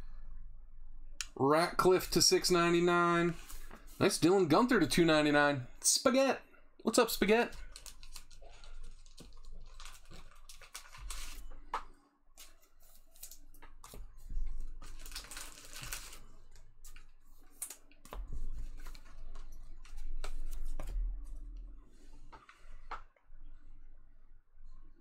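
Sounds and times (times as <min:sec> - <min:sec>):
cards rustling: 0:07.0 - 0:20.9.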